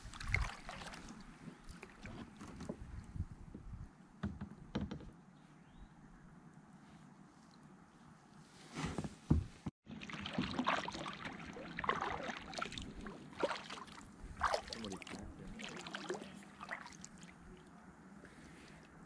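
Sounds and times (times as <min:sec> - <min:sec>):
kayak paddle splashing water: 0:00.0 - 0:02.5, 0:09.8 - 0:17.7.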